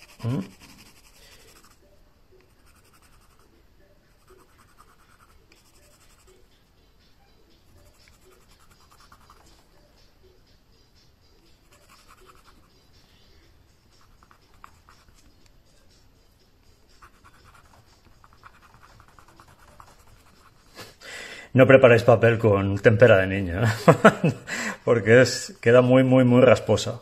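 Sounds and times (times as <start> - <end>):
pencil scratching on rough card: 0.0 - 1.8, 2.5 - 3.5, 4.1 - 6.4, 7.7 - 9.6, 11.6 - 12.8, 13.9 - 15.4, 16.9 - 21.0.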